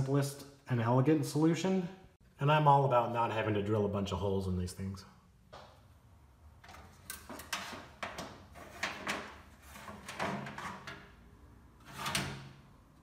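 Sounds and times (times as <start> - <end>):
metal units knocking and clunking: 6.6 - 12.6.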